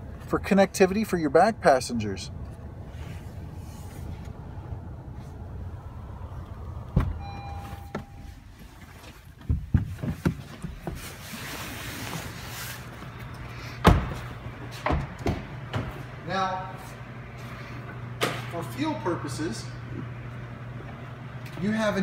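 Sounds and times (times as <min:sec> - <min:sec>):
steady low hum: 0:00.0 - 0:22.0
car door clunk: 0:06.8 - 0:08.4
knocks and rustling against seat: 0:06.8 - 0:11.2
car electronic chime: 0:07.1 - 0:08.6.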